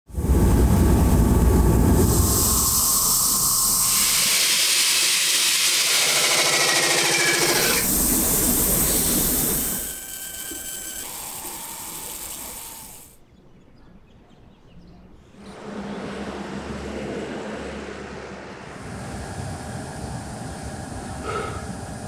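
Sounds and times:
machine noise with steady tones: 0:00.1 - 0:13.2, 0:15.4 - 0:22.0
grinding wheel hissing on metal: 0:01.8 - 0:13.2
low rumble with hiss: 0:13.2 - 0:22.0.

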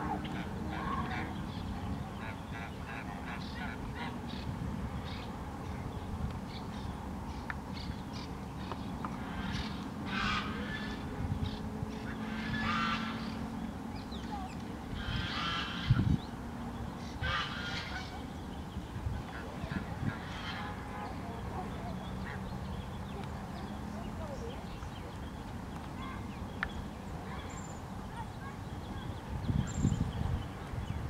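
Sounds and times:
geese honking: 0:09.4 - 0:11.0, 0:12.0 - 0:13.4, 0:14.9 - 0:16.0, 0:17.2 - 0:18.2.

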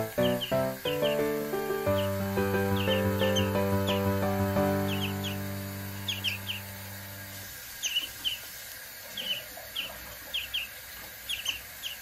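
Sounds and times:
soft background music: 0:00.0 - 0:07.5
fledgling songbird chirping: 0:00.0 - 0:08.4.

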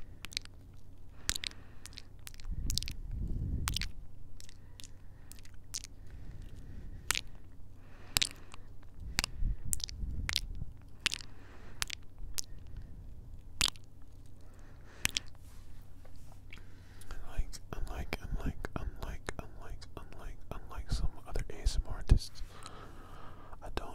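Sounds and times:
kisses and wet lip smacks: 0:00.2 - 0:03.0, 0:03.6 - 0:07.5, 0:08.1 - 0:12.8, 0:13.4 - 0:14.4, 0:15.0 - 0:15.4.

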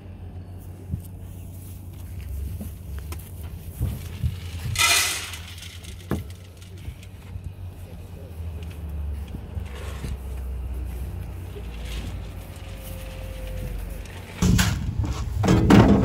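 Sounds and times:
steady low rumble: 0:00.0 - 0:16.0
metal buckets clanking: 0:03.7 - 0:07.3, 0:11.6 - 0:16.0.

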